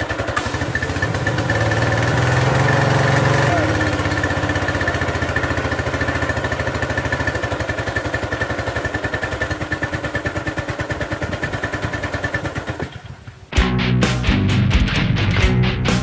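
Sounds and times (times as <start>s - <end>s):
pressure washer engine running: 0.0s - 13.1s
rock music with guitar: 13.5s - 16.0s.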